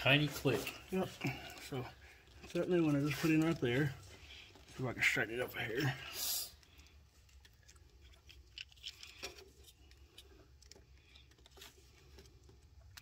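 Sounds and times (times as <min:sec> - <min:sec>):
clicks and scraping in connector: 0:06.6 - 0:13.0.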